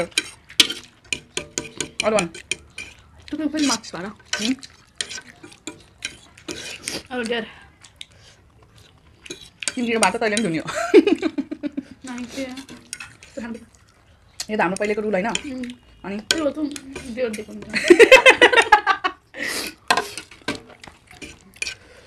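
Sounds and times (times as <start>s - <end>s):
utensils clinking on a bowl: 0.0s - 18.8s, 19.6s - 22.0s
voices: 9.7s - 19.0s.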